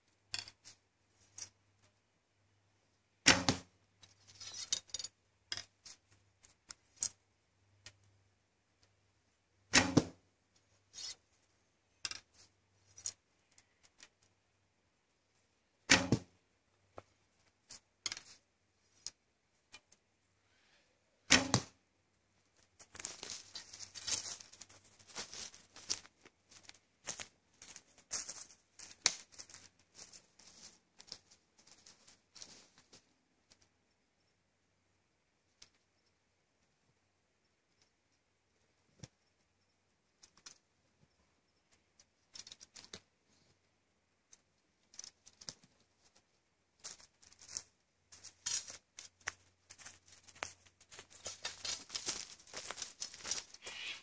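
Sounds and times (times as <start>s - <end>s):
arrow handling clicks and rattles: 0.3s - 2.0s, 3.3s - 7.2s, 11.9s - 14.4s, 15.9s - 16.2s, 17.0s - 18.4s, 19.0s - 20.0s, 22.6s - 33.7s, 41.7s - 43.1s, 46.8s - 54.0s
bow shot snap: 3.2s - 3.7s, 9.7s - 10.2s, 15.9s - 16.3s, 21.3s - 21.7s
footsteps crunching dry leaves: 50.9s - 54.0s.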